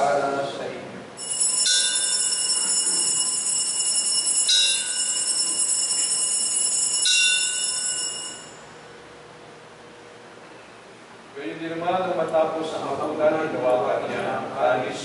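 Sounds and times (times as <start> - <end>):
altar bells ringing: 1.2 - 8.8.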